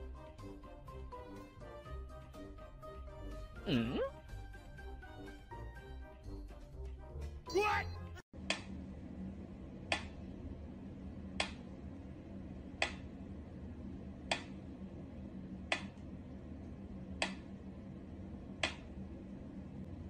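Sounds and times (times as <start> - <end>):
faint steady hum: 8.4 - 20.0.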